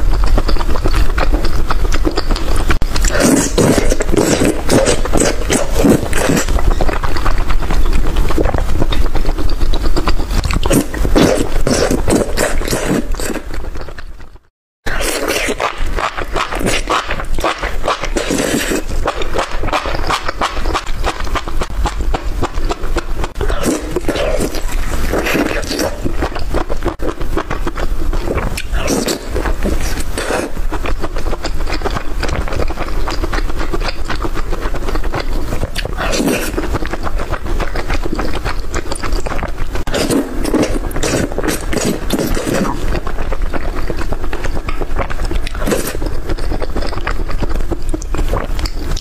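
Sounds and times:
chewing sounds: 0.0s - 49.0s.

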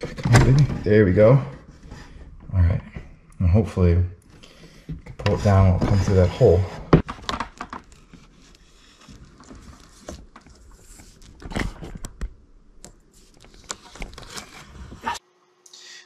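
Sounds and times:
tube scraping and rustling: 5.2s - 12.2s, 13.1s - 15.2s.

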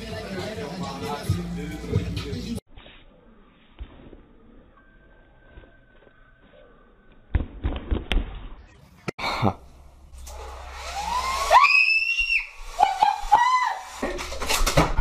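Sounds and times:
girl screaming: 11.1s - 13.9s.

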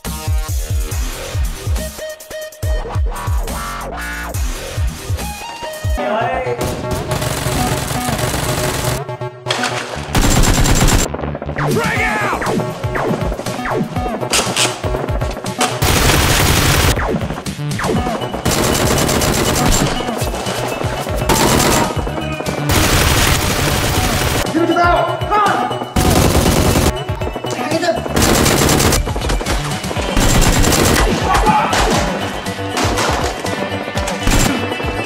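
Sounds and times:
background music: 0.0s - 35.0s
automatic gunfire bursts: 7.1s - 9.0s, 10.2s - 11.1s, 15.6s - 17.0s, 18.5s - 20.0s, 21.3s - 22.0s, 22.7s - 24.5s, 26.0s - 27.0s, 28.2s - 29.4s, 30.2s - 31.2s.

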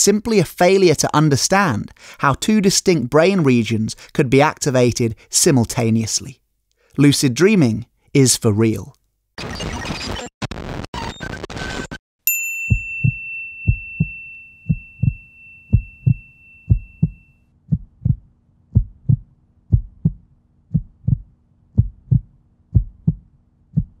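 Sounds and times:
bright ding: 12.3s - 17.4s
heartbeat thumps: 12.7s - 24.0s.

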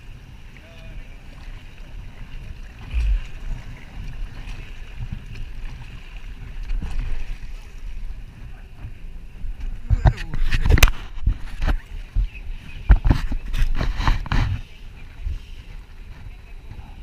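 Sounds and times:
paddle blades splashing: 0.0s - 17.0s
low rumble: 2.5s - 10.4s.

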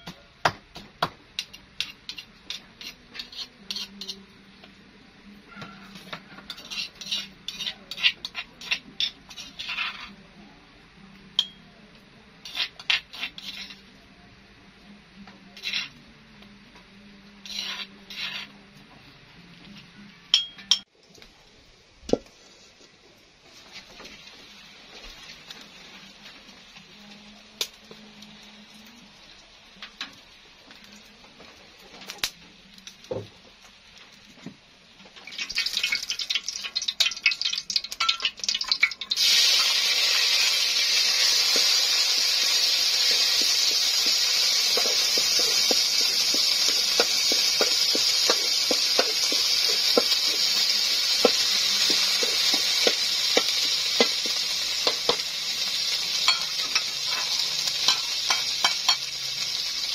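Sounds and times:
metal spoon scraping in mortar: 1.4s - 4.3s, 5.8s - 10.2s, 12.4s - 13.9s, 15.6s - 16.0s, 17.4s - 18.6s, 40.4s - 55.2s.

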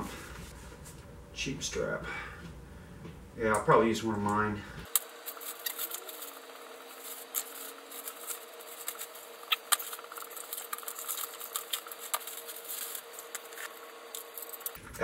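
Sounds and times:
faint steady hum: 0.0s - 15.0s
plastic packaging crinkling: 4.9s - 14.8s.

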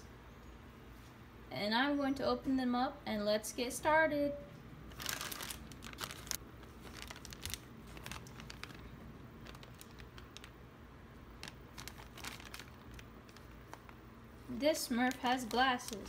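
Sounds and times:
plastic bag crinkling: 4.9s - 10.6s, 11.3s - 16.0s.

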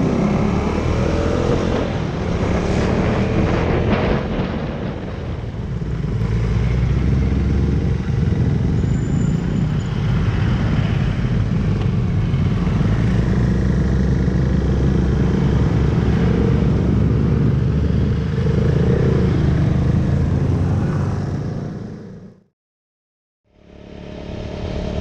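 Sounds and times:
motorcycle engine cruising: 5.7s - 22.4s.

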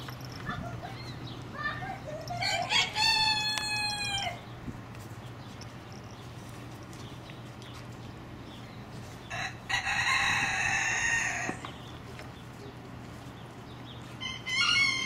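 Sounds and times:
rooster crowing: 2.3s - 4.4s, 9.3s - 11.6s, 14.2s - 15.0s.

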